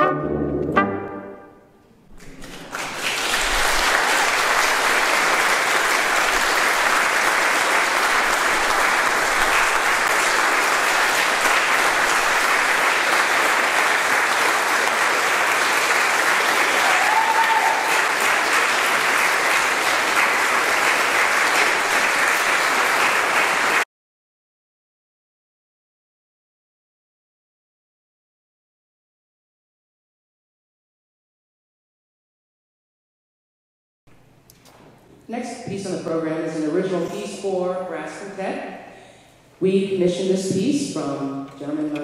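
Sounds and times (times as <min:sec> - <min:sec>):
brass chord ringing: 0:00.0 - 0:01.8
audience applauding: 0:02.2 - 0:23.9.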